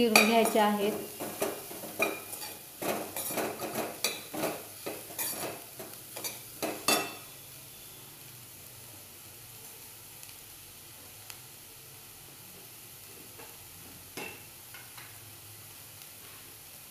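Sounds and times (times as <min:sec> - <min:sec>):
vegetables sizzling: 0:00.0 - 0:16.9
metal spatula scraping a pan: 0:00.1 - 0:07.4.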